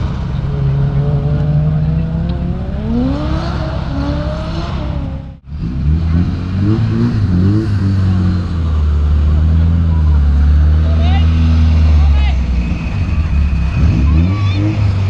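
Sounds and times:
car engines revving: 0:00.0 - 0:15.0.

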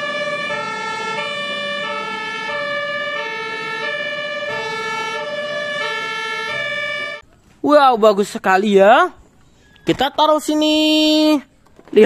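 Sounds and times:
two-tone fire truck siren: 0:00.0 - 0:07.2.

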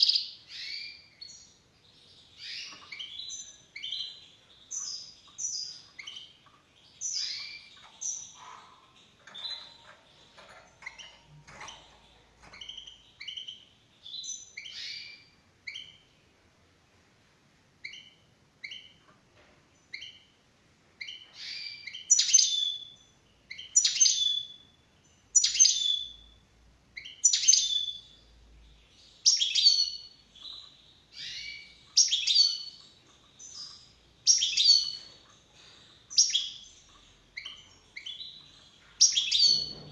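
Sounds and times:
finch high chirps: 0:00.0 - 0:16.1, 0:17.8 - 0:19.0, 0:19.9 - 0:20.3, 0:21.0 - 0:26.4, 0:27.0 - 0:39.9.

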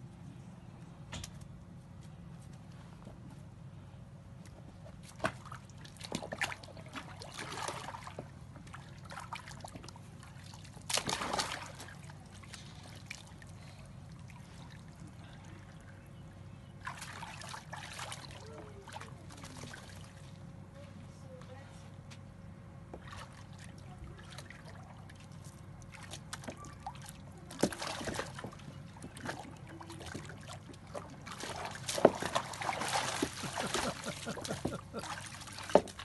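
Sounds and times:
water splashing in a plastic tub: 0:05.0 - 0:15.9, 0:16.8 - 0:20.3, 0:23.0 - 0:36.0.

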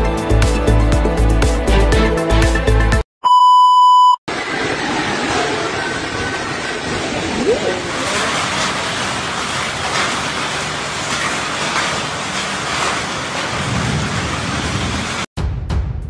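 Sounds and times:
heavy rain and hail pelting: 0:04.3 - 0:15.3.

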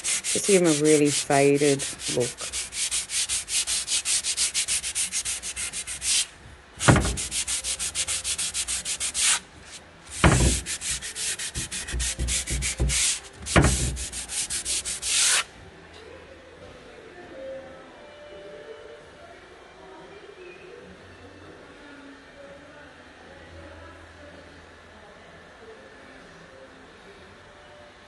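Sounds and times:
sanding pad rubbing wood: 0:00.0 - 0:15.5.

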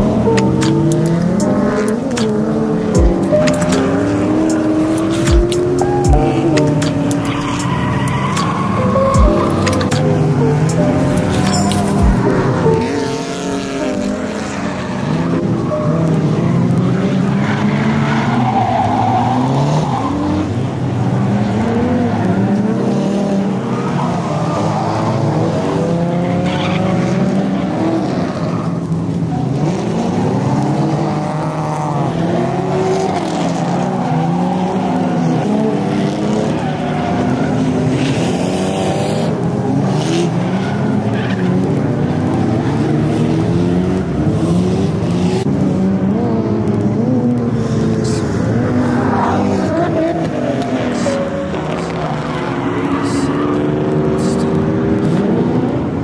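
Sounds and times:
car engines revving: 0:00.0 - 0:56.0
tyres squealing: 0:03.0 - 0:22.6.

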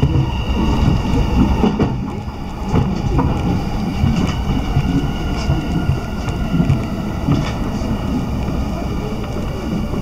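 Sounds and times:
train wheels rumbling on rails: 0:00.0 - 0:10.0.

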